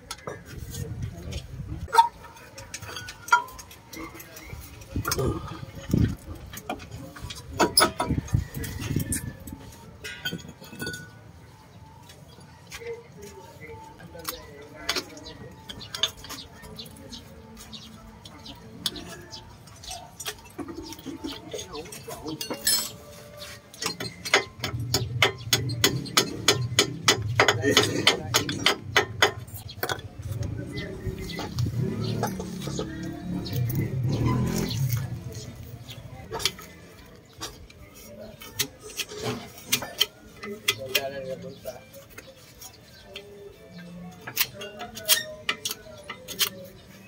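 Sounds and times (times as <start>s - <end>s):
metallic knocks and clinks: 2.6s - 4.0s, 10.0s - 11.2s, 22.4s - 23.1s.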